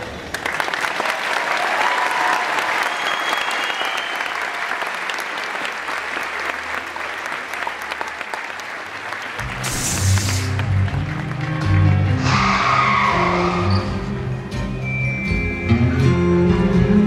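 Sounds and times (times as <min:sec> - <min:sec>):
audience applauding: 0:00.0 - 0:12.3.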